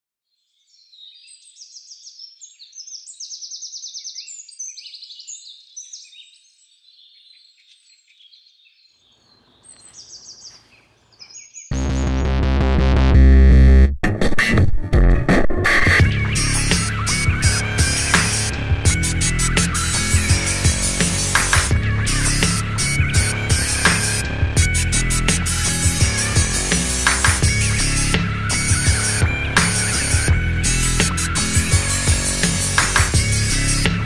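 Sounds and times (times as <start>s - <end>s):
small birds chirping: 0.4s - 11.8s, 16.0s - 34.0s
loud music with heavy bass: 11.7s - 34.0s.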